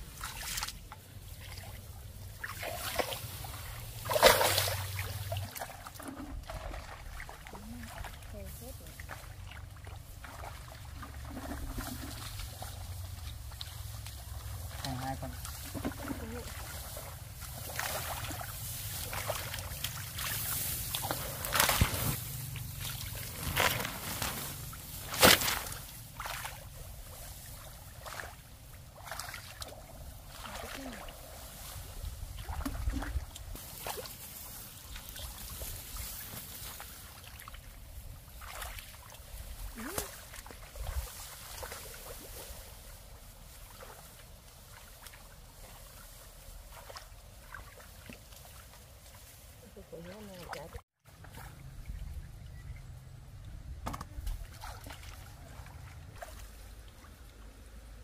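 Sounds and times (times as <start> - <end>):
rice stalks brushing: 2.4 - 5.4, 11.6 - 28.3, 33.5 - 37.5, 38.3 - 49.6
hands splashing in muddy water: 2.4 - 8.3, 9.1 - 31.3, 54.2 - 57.3.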